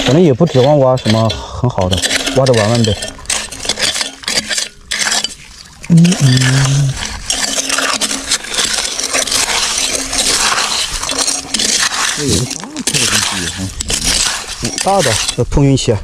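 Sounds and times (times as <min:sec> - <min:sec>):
hoe scraping gravelly soil: 0:00.0 - 0:16.0
person humming: 0:05.9 - 0:07.0.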